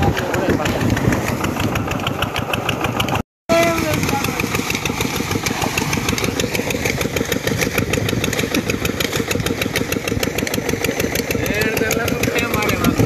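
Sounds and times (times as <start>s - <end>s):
pump engine running: 0.0s - 13.0s
water gushing into a tank: 3.6s - 13.0s.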